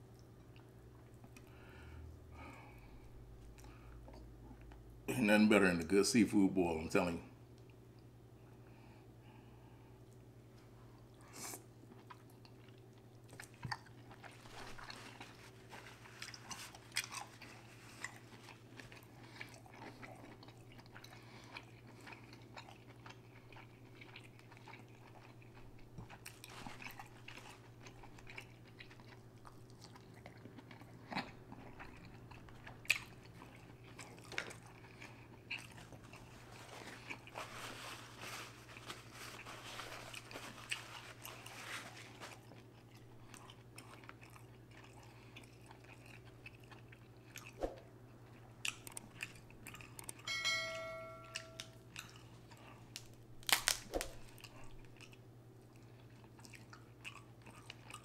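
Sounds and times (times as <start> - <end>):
person chewing food: 0.0 - 4.9, 10.0 - 50.4, 51.2 - 58.0
faint low hum: 0.0 - 58.0
wet crunches and clicks: 52.9 - 54.6.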